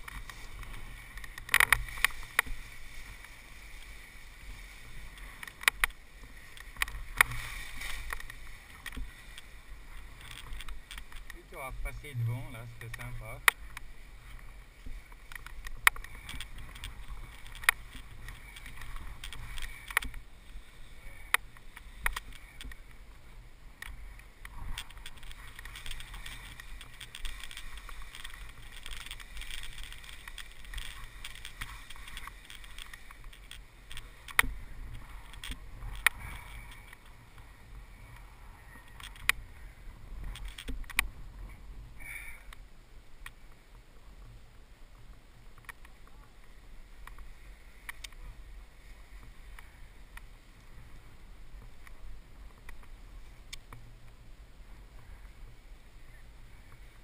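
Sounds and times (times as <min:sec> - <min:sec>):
clicks and knocks of gear: 0:00.0 - 0:11.5, 0:12.8 - 0:20.2, 0:21.1 - 0:23.0, 0:23.8 - 0:39.4, 0:40.2 - 0:42.6
wind rumbling on microphone: 0:00.0 - 0:57.0.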